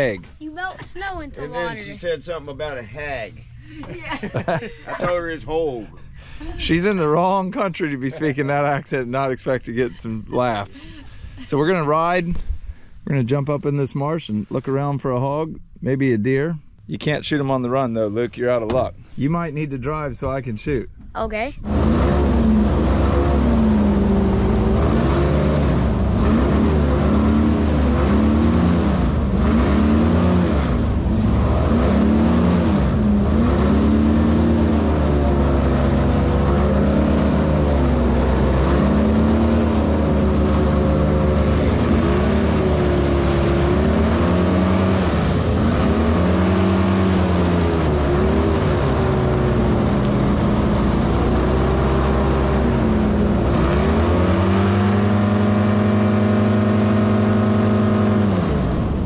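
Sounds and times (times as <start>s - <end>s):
airboat engine and propeller: 21.6s - 59.0s.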